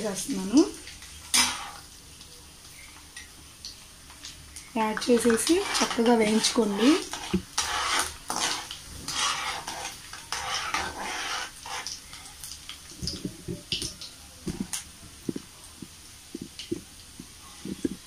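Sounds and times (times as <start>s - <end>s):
frying in hot oil: 0.0s - 18.0s
metal ladle scraping pan: 1.2s - 1.8s, 5.2s - 12.0s.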